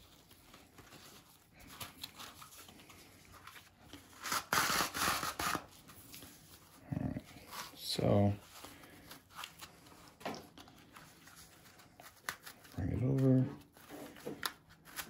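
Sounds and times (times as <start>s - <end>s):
hook-and-loop fastener ripping: 4.2s - 5.7s.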